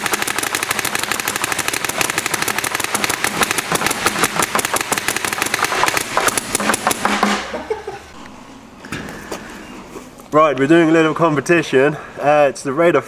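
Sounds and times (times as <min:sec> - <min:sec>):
paintball markers firing rapidly: 0:00.0 - 0:07.4.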